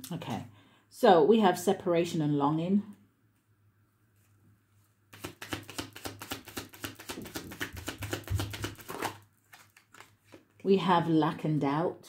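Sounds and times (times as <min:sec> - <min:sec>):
cards being shuffled: 0:05.1 - 0:10.6.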